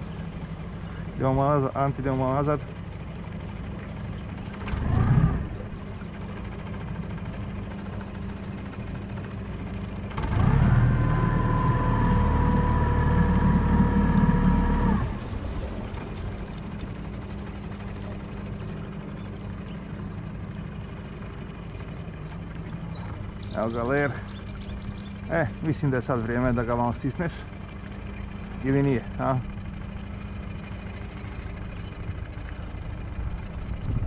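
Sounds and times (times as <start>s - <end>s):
boat motor humming: 0.0s - 34.0s.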